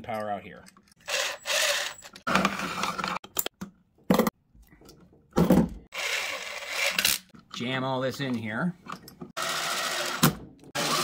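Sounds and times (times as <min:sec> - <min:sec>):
wires and metal parts scraping: 0:00.0 - 0:03.6.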